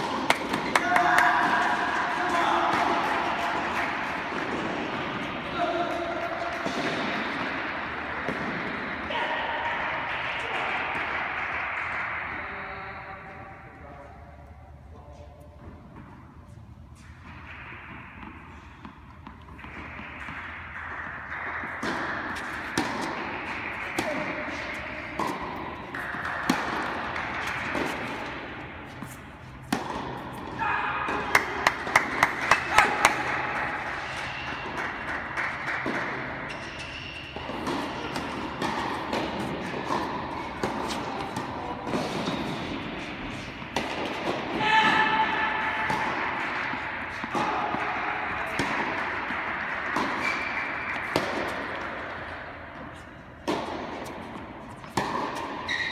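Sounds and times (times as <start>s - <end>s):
tennis balls struck and bouncing: 0.0s - 14.1s, 15.4s - 55.9s.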